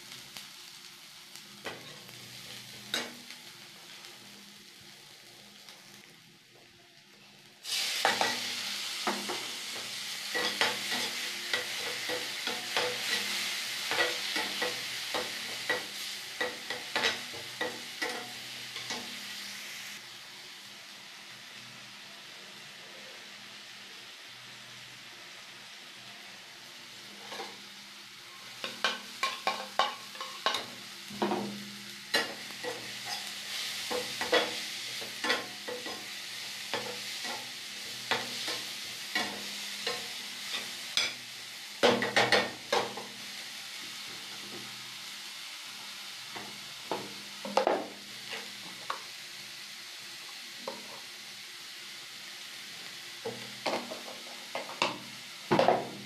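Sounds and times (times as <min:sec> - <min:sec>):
vegetables sizzling in a pan: 0:00.0 - 0:56.0
spatula scraping a metal pan: 0:27.2 - 0:27.6.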